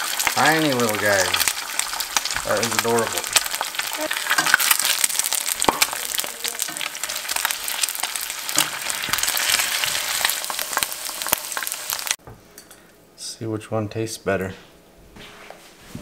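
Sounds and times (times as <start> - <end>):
eggs sizzling in oil: 0.0 - 12.2.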